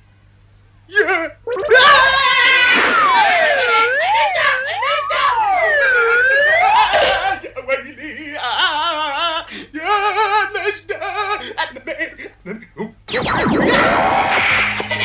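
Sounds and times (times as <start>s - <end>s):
swooping pitched tone: 1.3s - 7.3s, 13.1s - 15.0s
quavering trembling sound: 1.4s - 7.1s.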